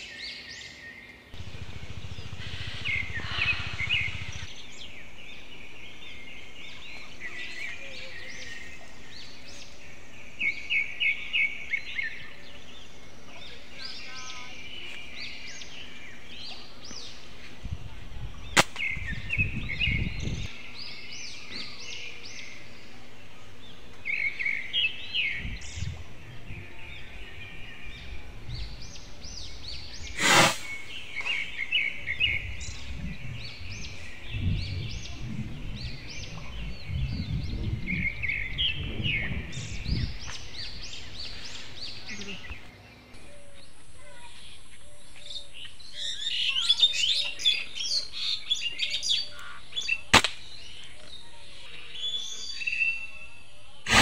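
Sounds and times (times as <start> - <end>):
small birds chirping: 0.0 - 54.0
slingshot snap: 18.6 - 18.9, 50.1 - 50.5
brief rush of noise: 30.2 - 30.9.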